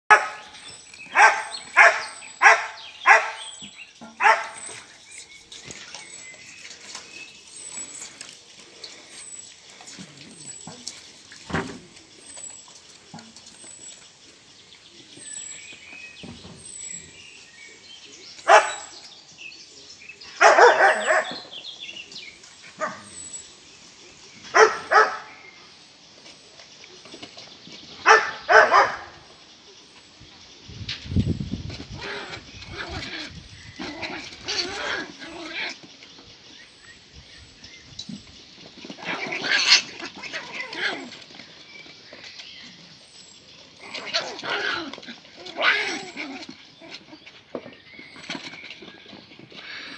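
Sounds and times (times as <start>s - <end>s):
puppies yapping: 0.1s - 8.4s, 20.3s - 21.5s, 24.5s - 25.3s, 28.0s - 29.2s, 31.9s - 35.8s, 38.8s - 41.6s, 43.8s - 49.9s.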